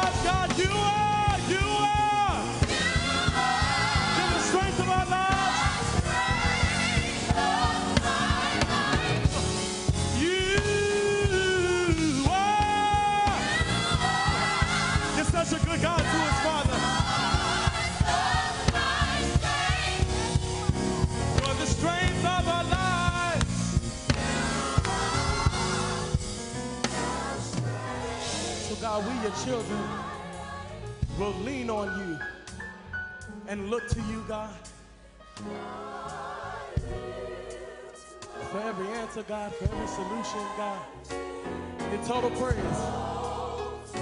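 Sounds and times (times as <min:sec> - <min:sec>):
steady beat: 0:00.0 - 0:30.4
gospel choir singing: 0:00.0 - 0:32.2, 0:35.0 - 0:44.0.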